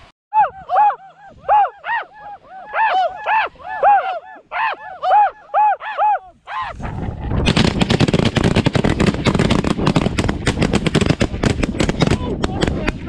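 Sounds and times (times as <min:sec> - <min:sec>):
snow goose calls: 0:01.5 - 0:06.2
rapid shotgun fire: 0:07.4 - 0:13.0.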